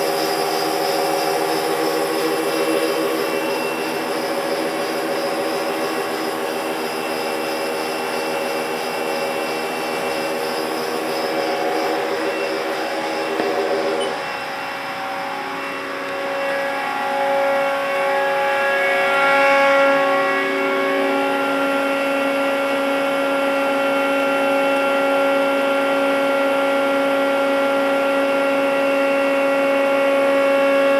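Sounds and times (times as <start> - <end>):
lathe machine whine: 0.0 - 30.9.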